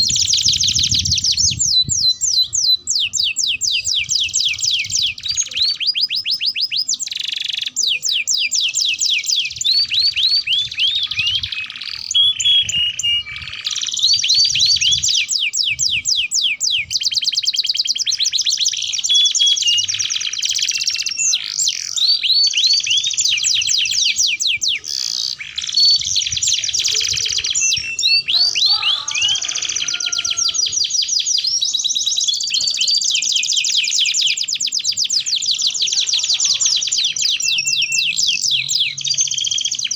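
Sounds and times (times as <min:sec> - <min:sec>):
canary singing trills: 0:00.0 - 0:39.9.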